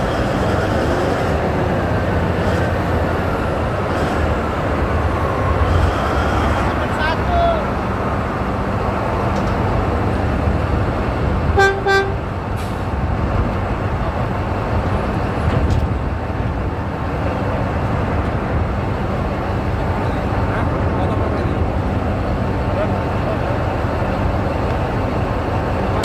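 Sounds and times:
diesel engine idling: 0.0 - 26.0
truck horn toots: 11.6 - 12.3.

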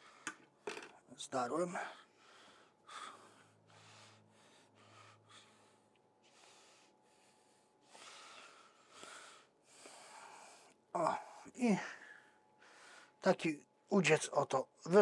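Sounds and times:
man breathing softly: 1.7 - 13.2.

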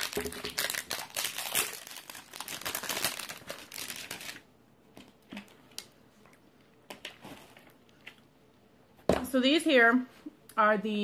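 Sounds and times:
plastic wrap crinkling and tearing: 0.0 - 4.5.

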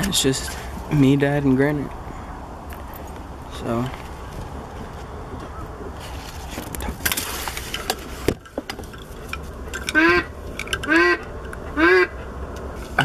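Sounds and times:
rustling: 3.8 - 9.8
goose honks: 9.9 - 10.3, 10.9 - 11.2, 11.8 - 12.2.

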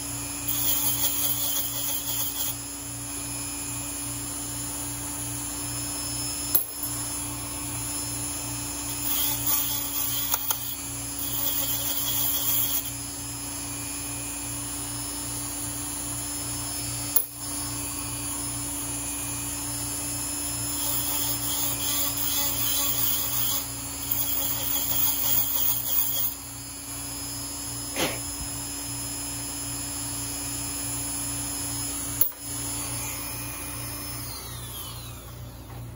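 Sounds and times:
small power tool running: 0.0 - 35.9
high scraping of cut brass: 0.5 - 2.6, 8.9 - 13.0, 20.8 - 26.4.

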